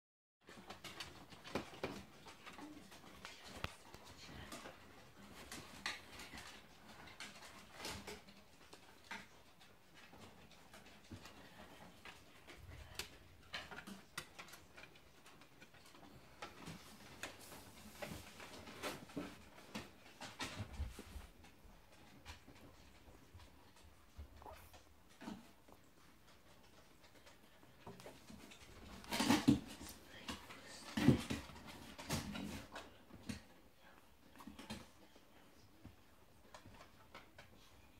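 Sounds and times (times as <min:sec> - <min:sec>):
puppy whimpering and snuffling: 0:24.1 - 0:25.9.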